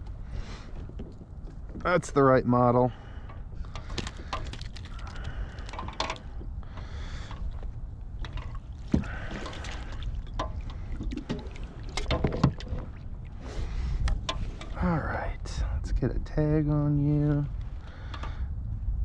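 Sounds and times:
wind rumble on microphone: 0:00.0 - 0:19.0
water splashing and dripping: 0:03.8 - 0:06.3, 0:08.2 - 0:13.4.

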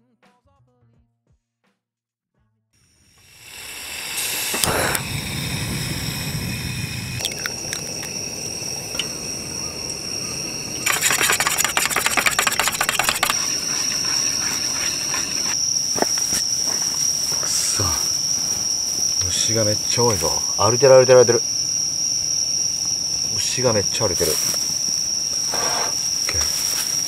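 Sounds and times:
night insects chirring: 0:02.8 - 0:27.0
chopsticks beating egg on metal tray: 0:10.9 - 0:15.6.

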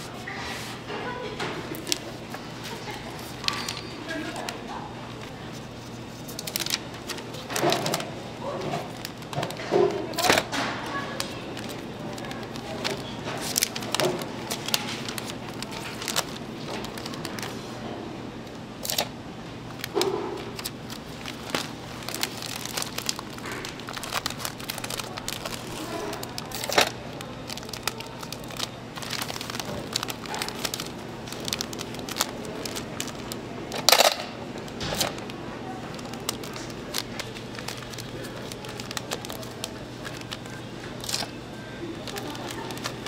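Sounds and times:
plastic wrap crinkling: 0:01.1 - 0:17.8, 0:19.7 - 0:43.0.

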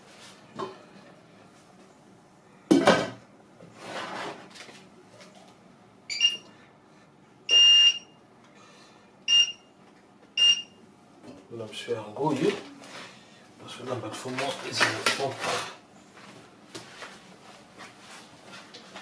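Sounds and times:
hob touch control beeps: 0:06.1 - 0:06.5, 0:07.5 - 0:08.1, 0:09.3 - 0:09.6, 0:10.4 - 0:10.7.

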